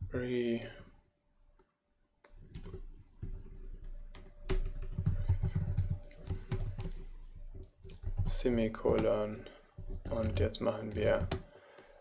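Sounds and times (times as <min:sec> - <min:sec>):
computer keyboard typing: 0:02.2 - 0:11.6.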